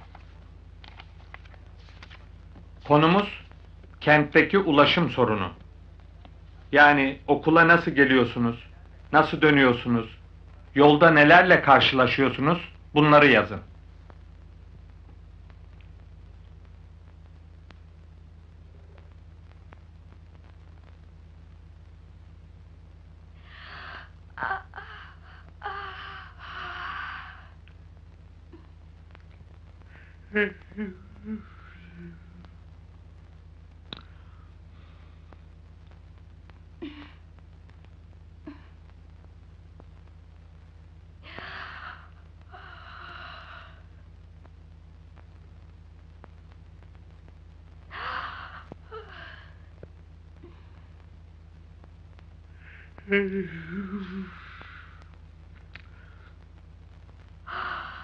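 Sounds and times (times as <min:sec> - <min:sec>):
steady low hum: 0:00.0 - 0:58.0
person yawning: 0:23.6 - 0:27.6, 0:30.3 - 0:32.5, 0:36.8 - 0:37.2, 0:47.9 - 0:49.6, 0:52.7 - 0:55.1.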